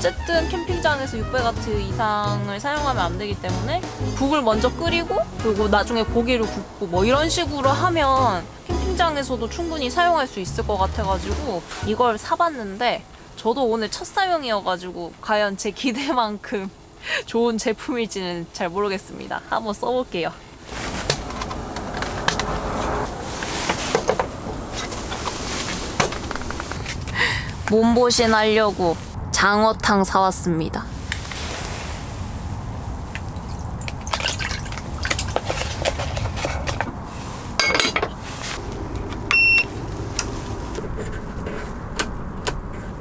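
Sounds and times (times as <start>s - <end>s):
electronic appliance beep: 39.3s - 39.7s.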